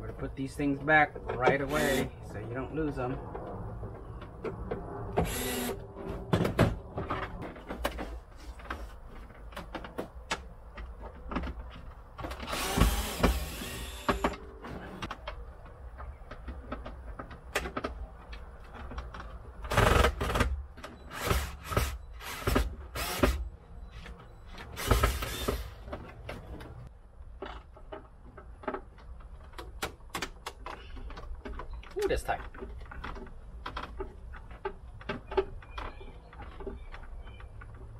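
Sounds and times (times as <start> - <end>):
cordless screwdriver running: 1.7 - 2.1, 5.3 - 5.8, 12.5 - 14.1.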